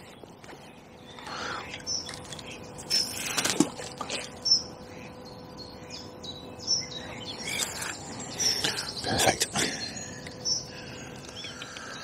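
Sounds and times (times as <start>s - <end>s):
small songbird chirping: 0.0s - 3.4s, 4.2s - 12.0s.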